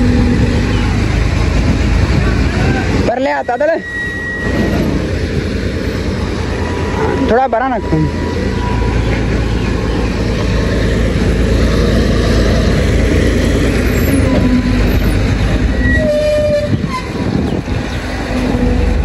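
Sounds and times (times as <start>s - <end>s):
tractor diesel engine running: 0.0s - 19.0s
short pitched tones: 3.2s - 5.2s.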